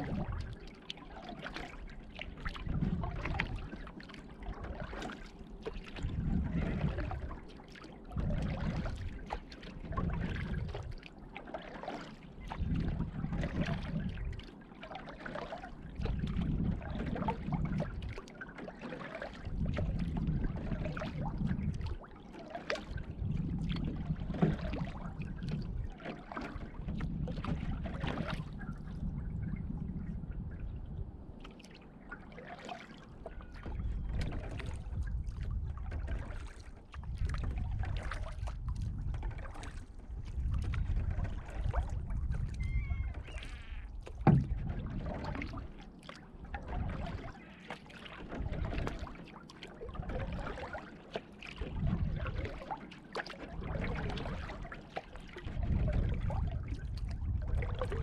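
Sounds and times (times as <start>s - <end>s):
water dripping and splashing: 0.0s - 29.0s, 31.4s - 58.0s
paddle strokes: 0.0s - 30.5s, 31.3s - 58.0s
water lapping at hull: 0.0s - 58.0s
low rumble: 28.6s - 31.4s.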